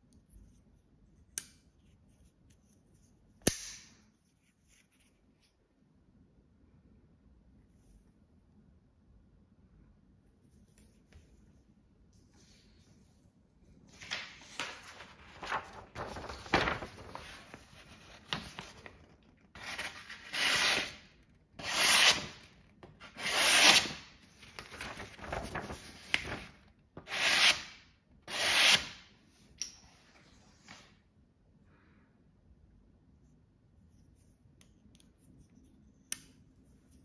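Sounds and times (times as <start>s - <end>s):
paper rustling: 13.8s - 21.0s, 23.6s - 26.8s
knife slicing paper: 19.6s - 21.0s, 21.6s - 22.5s, 23.1s - 24.0s.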